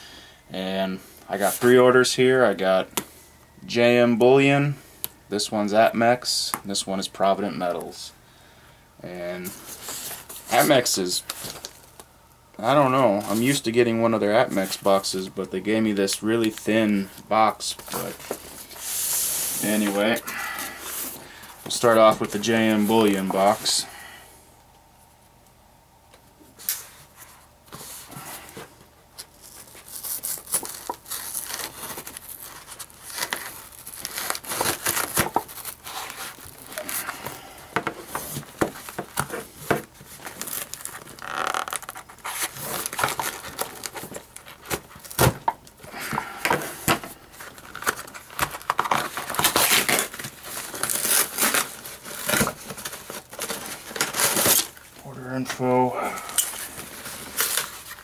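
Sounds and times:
ripping cardboard and tape: 0:27.7 - 0:55.0, 0:56.2 - 0:58.0.

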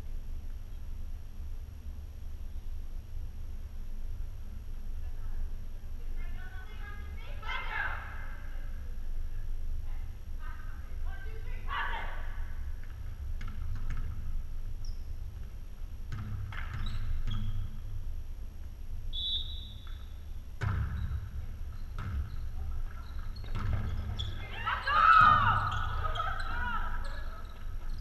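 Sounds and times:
low hum in hall: 0:00.0 - 0:28.0
shoe squeak: 0:14.8 - 0:15.1, 0:16.6 - 0:17.8, 0:20.9 - 0:28.0
volleyball being hit: 0:20.6 - 0:22.3.

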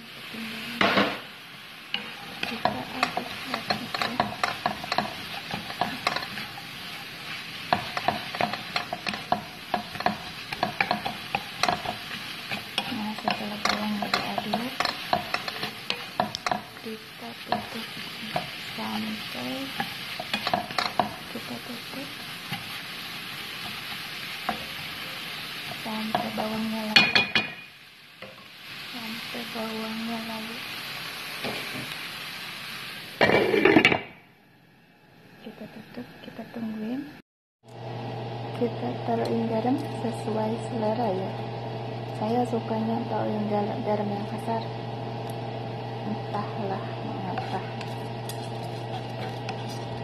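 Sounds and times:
soft sizzle: 0:00.0 - 0:50.0
spatula scraping a pan: 0:01.9 - 0:16.8, 0:47.2 - 0:50.0.

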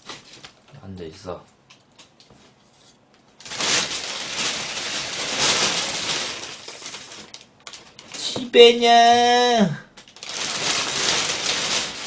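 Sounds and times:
plastic bag crinkling: 0:03.4 - 0:08.8, 0:10.0 - 0:12.0.

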